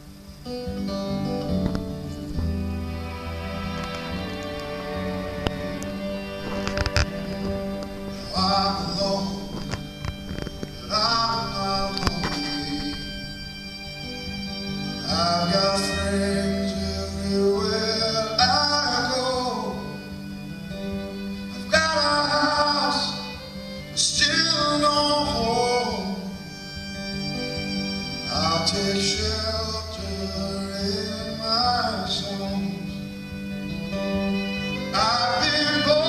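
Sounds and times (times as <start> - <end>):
acoustic guitar: 0.0 - 36.0
string accompaniment: 0.0 - 36.0
man singing: 8.2 - 10.0, 10.8 - 13.1, 15.0 - 20.1, 21.5 - 26.5, 28.2 - 33.2, 34.8 - 36.0.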